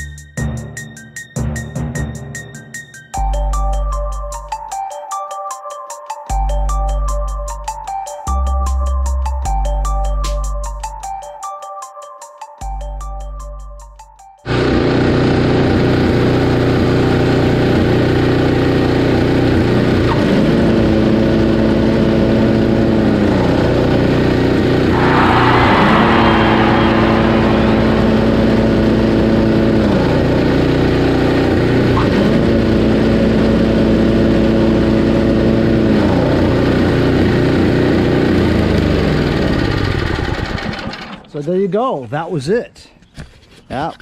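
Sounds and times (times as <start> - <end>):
snowblower engine running: 14.5 - 41.0
engine whine: 24.7 - 40.8.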